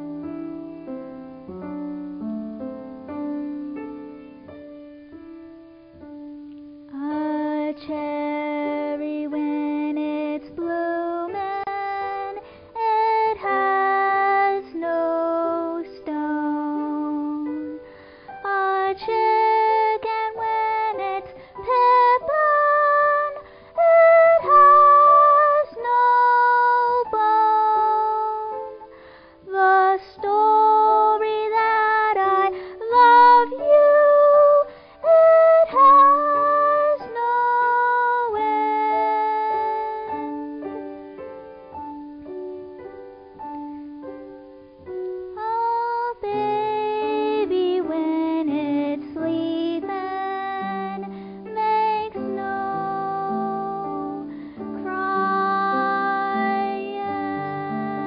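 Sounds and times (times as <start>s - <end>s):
grand piano ballad: 0.0s - 58.0s
woman singing with vibrato: 6.9s - 17.7s, 18.4s - 28.8s, 29.4s - 40.4s, 45.4s - 58.0s.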